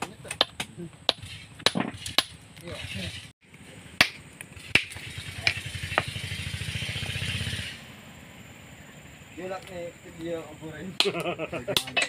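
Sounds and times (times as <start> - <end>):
small engine running: 4.6 - 8.4.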